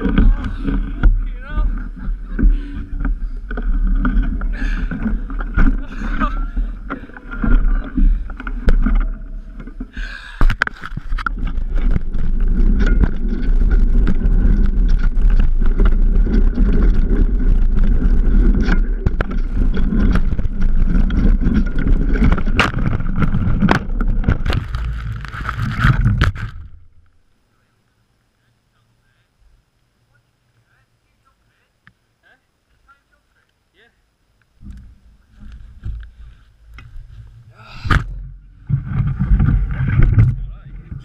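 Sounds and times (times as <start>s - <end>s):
bike crash: 0.0s - 27.0s
bike knocking and rattling: 0.0s - 27.2s, 34.6s - 41.0s
wind buffeting microphone: 37.9s - 41.0s.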